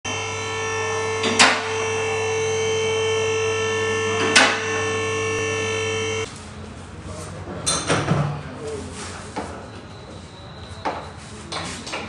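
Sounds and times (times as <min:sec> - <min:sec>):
electric buzzing hum: 0:00.1 - 0:06.3.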